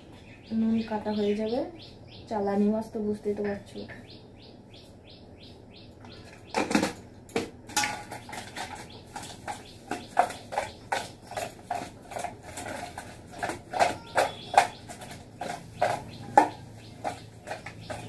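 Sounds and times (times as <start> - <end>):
steel vessel clinking and knocking: 6.6 - 18.0.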